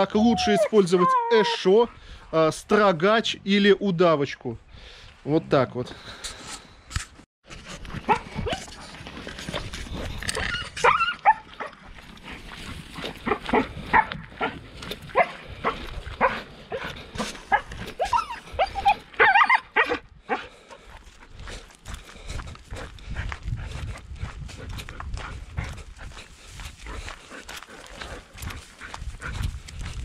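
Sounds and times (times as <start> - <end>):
husky yelping and whining: 0.2 - 1.7, 10.4 - 11.8, 17.5 - 20.4.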